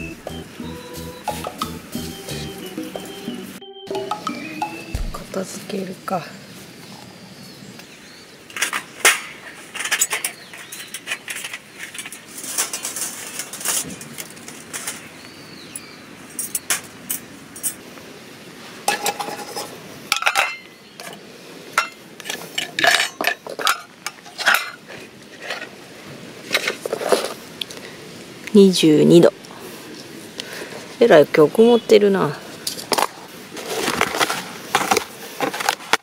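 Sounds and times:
metal cookware clinking: 0:18.9 - 0:21.2, 0:21.8 - 0:24.8.

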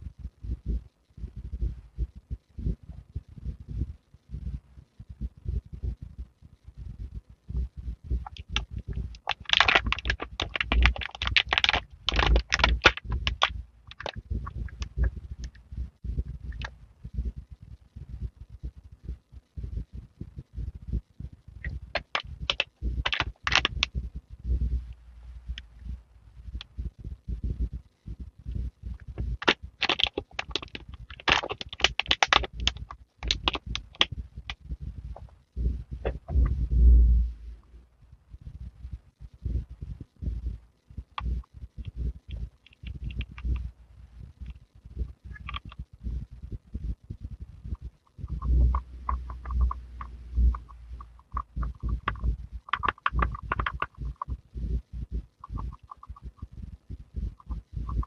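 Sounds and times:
soft low thumps: 0:00.0 - 0:58.0
plastic pouch crinkling: 0:09.2 - 0:14.2, 0:21.9 - 0:23.8, 0:29.4 - 0:34.1.

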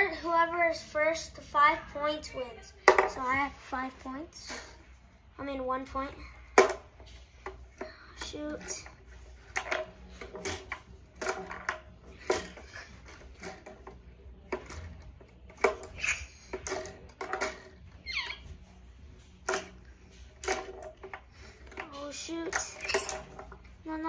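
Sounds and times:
ball rattling: 0:06.5 - 0:24.0.

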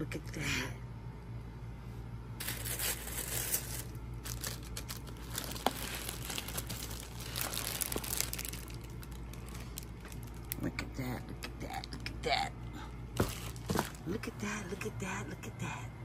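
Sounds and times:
plastic bag crinkling: 0:02.4 - 0:10.7, 0:13.2 - 0:14.1.

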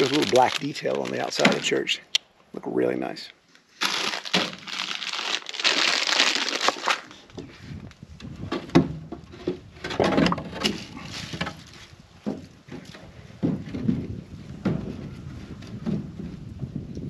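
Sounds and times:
crinkling and rustling: 0:00.0 - 0:02.0, 0:03.5 - 0:14.1
wooden knocks and scrapes: 0:08.3 - 0:16.4.

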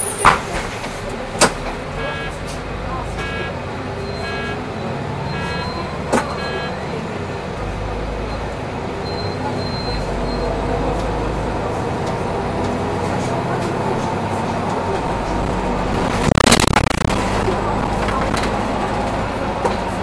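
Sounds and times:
bus engine whine rising: 0:00.9 - 0:20.0
electronic beeps: 0:02.0 - 0:02.4, 0:03.2 - 0:06.9.

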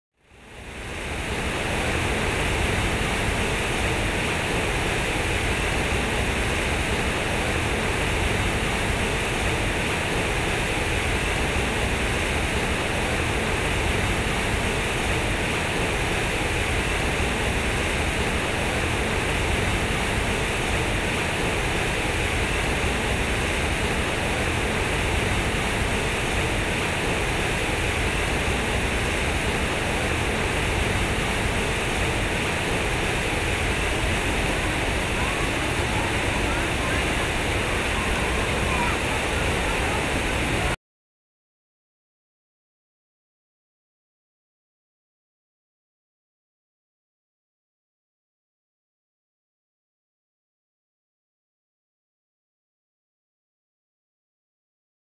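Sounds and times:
fountain water splashing: 0:00.3 - 0:40.8.

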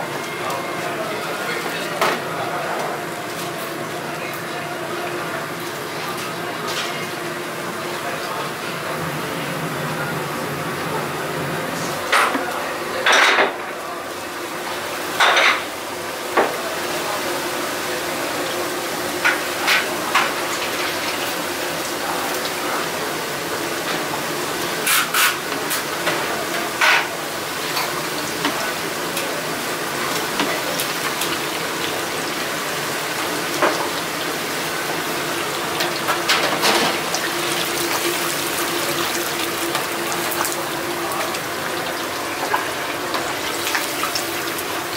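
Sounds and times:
oil bubbling and sizzling: 0:14.0 - 0:44.9.

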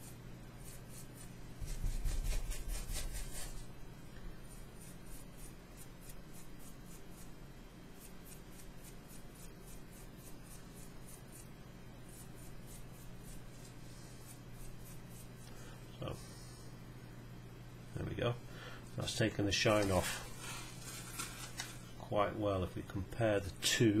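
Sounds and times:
paintbrush scrubbing surface: 0:00.0 - 0:03.7, 0:04.4 - 0:07.3, 0:08.0 - 0:11.5, 0:12.1 - 0:15.4
steady low hum: 0:00.0 - 0:24.0.

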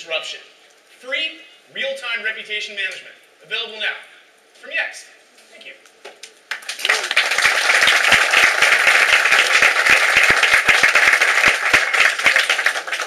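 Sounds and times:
audience applauding: 0:06.5 - 0:13.0.

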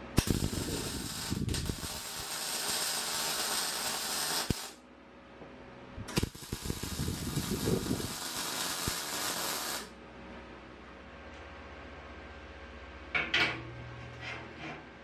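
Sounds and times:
welding arc buzzing: 0:00.0 - 0:04.8, 0:06.1 - 0:10.0.

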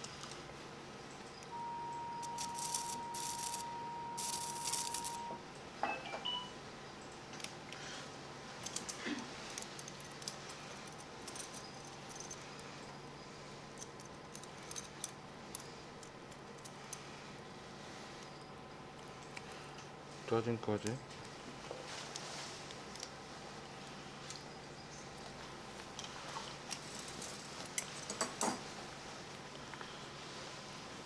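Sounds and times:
electrosurgical activation tone: 0:01.4 - 0:06.6
steel instruments clinking: 0:01.6 - 0:05.3.

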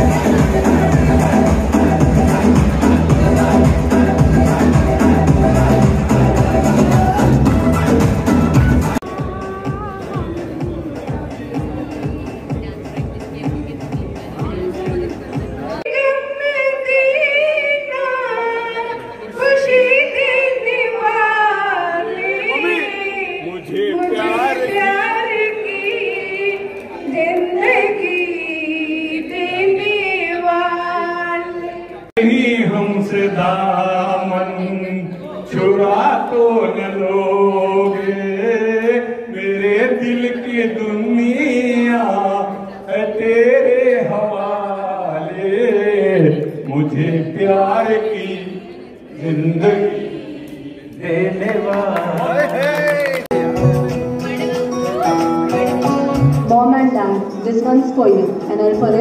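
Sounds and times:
woman singing into microphone: 0:09.0 - 0:10.9, 0:14.6 - 0:23.4, 0:24.6 - 0:32.0
man singing into a microphone: 0:32.2 - 0:50.0.

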